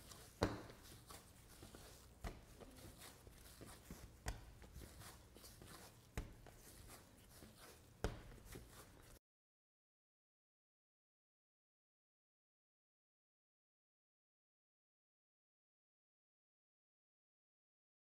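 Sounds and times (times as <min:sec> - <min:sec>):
soft thuds of dough kneading: 0:00.0 - 0:09.2.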